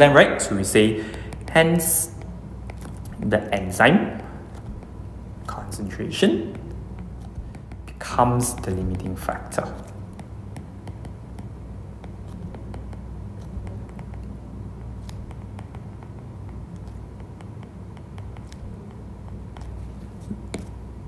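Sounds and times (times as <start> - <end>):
stylus tapping glass screen: 1.0 - 5.8, 6.4 - 20.9.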